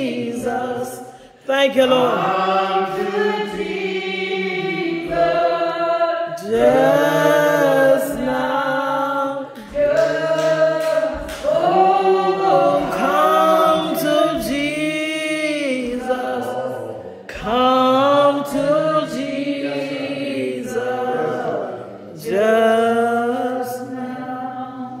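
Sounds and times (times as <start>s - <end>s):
breaths: 1.0s - 1.5s
person singing unaccompanied: 6.4s - 16.6s.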